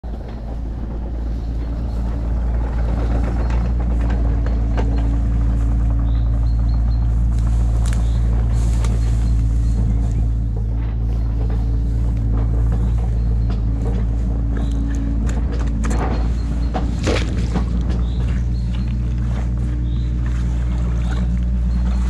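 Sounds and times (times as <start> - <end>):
diesel engine idling: 0.0 - 22.0
grass swishing against legs: 7.3 - 10.3.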